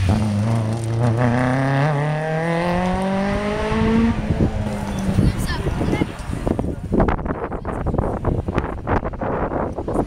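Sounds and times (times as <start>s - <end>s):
rally car engine accelerating: 0.0s - 5.2s.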